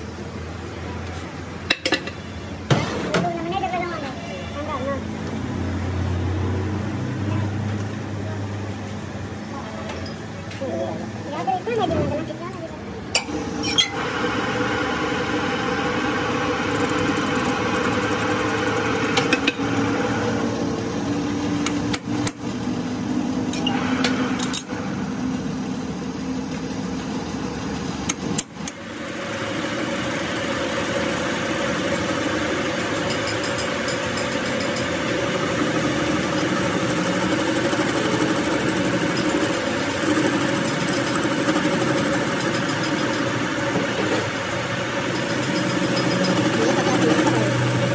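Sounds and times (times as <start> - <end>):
metal lathe cutting: 13.2 - 21.6, 28.3 - 47.9.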